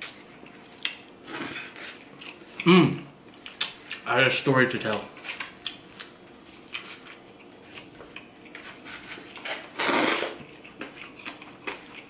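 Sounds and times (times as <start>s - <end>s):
loud slurp: 9.8s - 10.4s.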